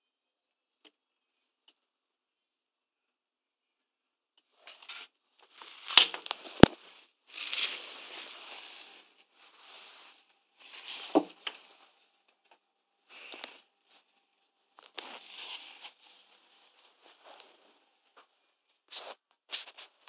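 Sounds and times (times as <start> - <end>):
close-up rustling and scuffling: 4.6 - 12.0, 14.8 - 18.3, 18.9 - 20.0.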